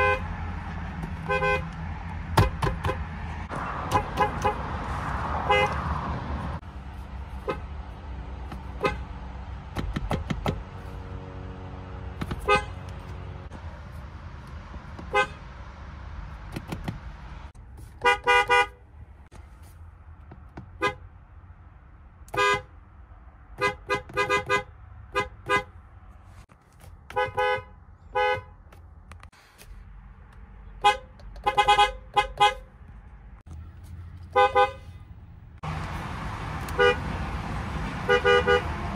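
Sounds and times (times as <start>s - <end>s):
car horns tooting: 0.0s - 0.4s, 1.2s - 1.7s, 3.8s - 4.7s, 5.4s - 5.9s, 7.3s - 7.7s, 8.6s - 9.1s, 12.2s - 13.0s, 15.0s - 15.5s, 18.0s - 18.8s, 20.7s - 21.0s, 22.3s - 22.8s, 23.6s - 25.8s, 27.1s - 28.6s, 30.7s - 32.7s, 34.3s - 35.1s, 36.7s - 37.1s, 38.0s - 38.8s.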